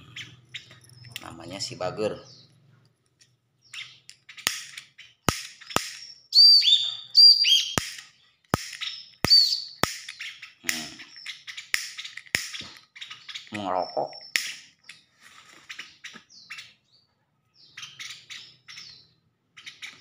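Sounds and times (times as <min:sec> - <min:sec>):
bird chip notes: 0:05.2 - 0:12.6
high whistled bird notes: 0:05.6 - 0:14.6.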